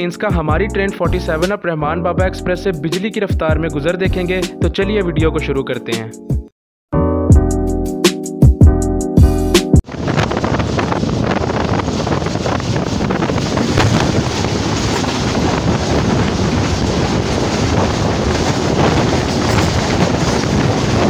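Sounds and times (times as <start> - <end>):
wind rushing past train: 9.8 - 21.0
oncoming train passing: 9.9 - 21.0
wheels clattering over rails: 11.2 - 21.0.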